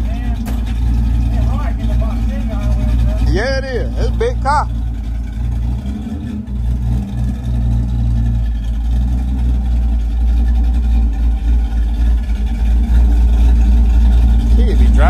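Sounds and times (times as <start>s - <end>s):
car engine running: 0.0s - 15.0s.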